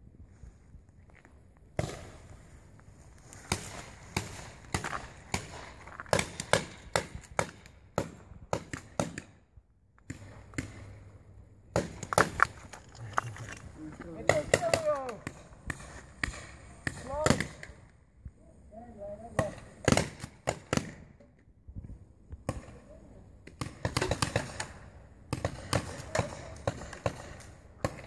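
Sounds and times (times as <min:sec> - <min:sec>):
paintball markers firing: 0:14.1 - 0:17.8, 0:19.3 - 0:21.1, 0:23.5 - 0:28.0.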